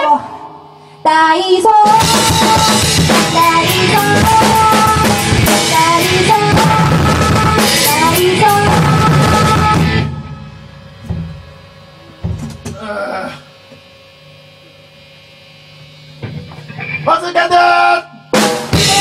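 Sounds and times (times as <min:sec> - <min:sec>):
band playing: 0:01.8 - 0:11.5, 0:18.3 - 0:19.0
drum kit: 0:01.8 - 0:12.8, 0:18.2 - 0:19.0.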